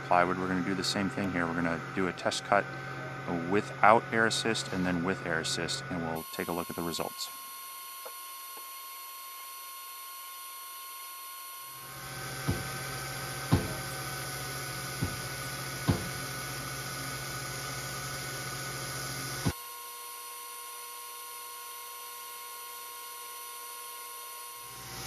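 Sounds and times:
electric air pump humming: 0:00.0 - 0:25.0
faint steady whine: 0:00.0 - 0:25.0.

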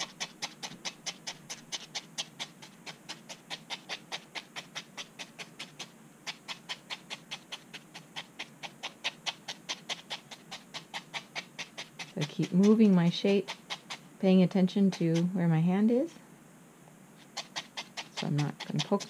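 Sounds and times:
felting needle stabbing foam: 0:17.2 - 0:19.0.

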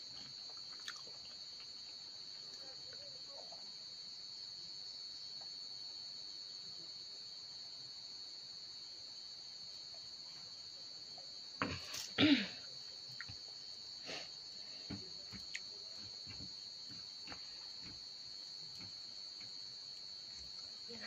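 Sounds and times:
crickets chirring: 0:00.0 - 0:21.0
hand mixing rice on steel plate: 0:13.2 - 0:21.0.

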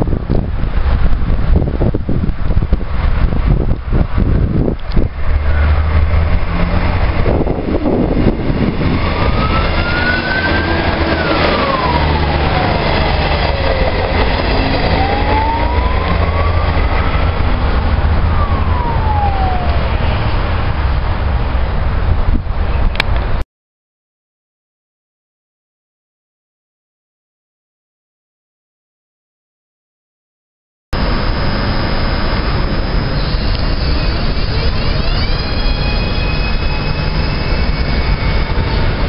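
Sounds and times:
train wheels rumbling on rails: 0:00.0 - 0:23.4, 0:31.0 - 0:39.0
tone gliding up and down: 0:04.9 - 0:20.9, 0:31.0 - 0:39.0.

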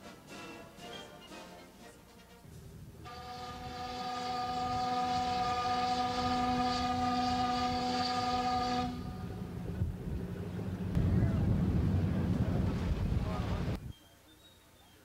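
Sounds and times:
steam whistle blowing: 0:03.0 - 0:09.5.

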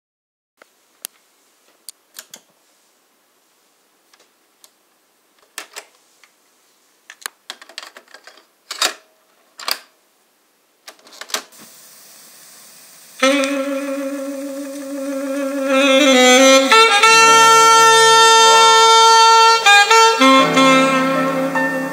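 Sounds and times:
tape hiss: 0:00.6 - 0:21.9
saxophone music: 0:13.1 - 0:21.9.

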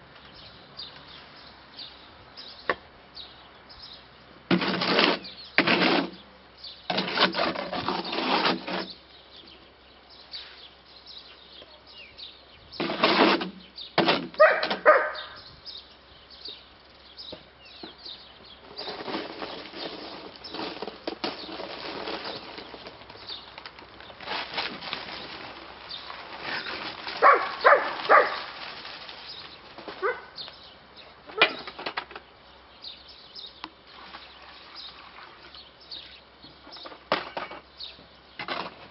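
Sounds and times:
shovel scraping in wheelbarrow: 0:04.5 - 0:09.1, 0:12.8 - 0:15.3, 0:18.6 - 0:23.4, 0:24.2 - 0:30.3, 0:36.6 - 0:38.9.

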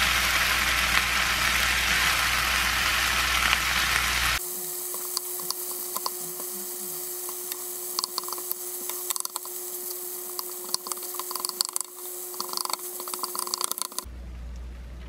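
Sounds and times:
rice sizzling in a frying pan: 0:00.0 - 0:14.1
spatula tapping and scraping pan: 0:04.9 - 0:14.1.

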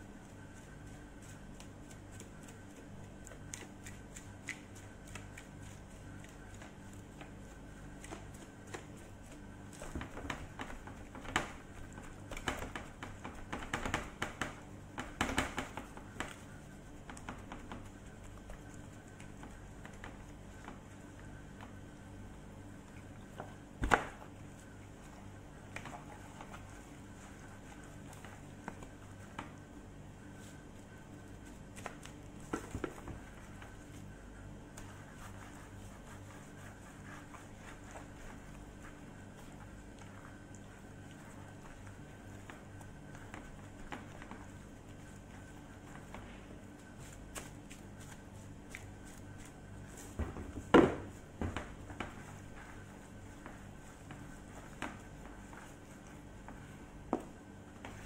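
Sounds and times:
gloved hands rubbing raw chicken: 0:00.0 - 0:58.0
steady low hum: 0:00.0 - 0:58.0.

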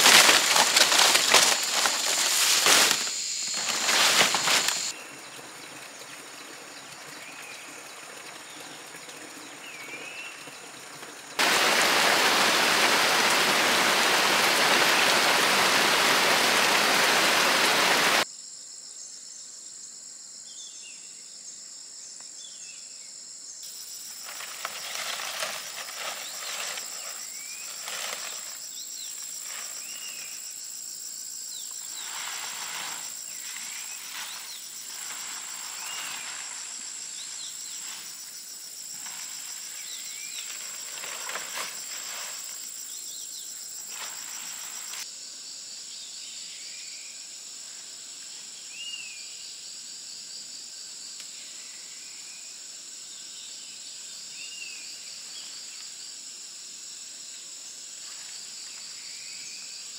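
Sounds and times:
short rustling: 0:00.0 - 0:04.9
insects buzzing: 0:00.0 - 0:59.9.

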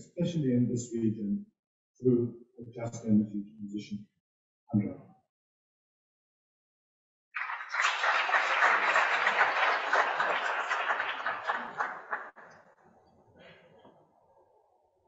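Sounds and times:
audience applauding: 0:07.4 - 0:12.8.

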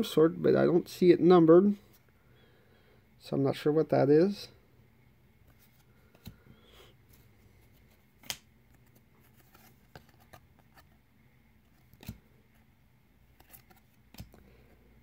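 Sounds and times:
cards flipping: 0:05.5 - 0:06.4, 0:07.1 - 0:11.0, 0:11.7 - 0:12.3, 0:13.3 - 0:14.7
card snap: 0:08.2 - 0:08.5.

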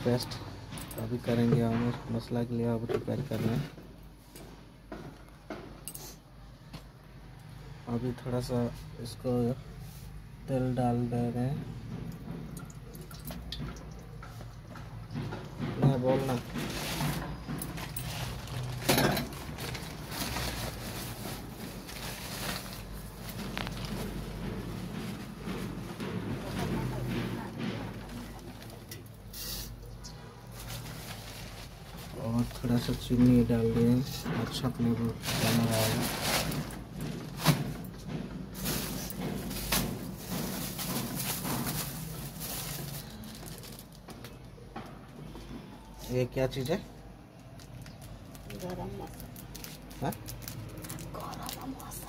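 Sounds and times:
plastic bag crinkling: 0:16.3 - 0:24.4, 0:30.5 - 0:33.0, 0:38.6 - 0:44.1, 0:47.4 - 0:52.0.

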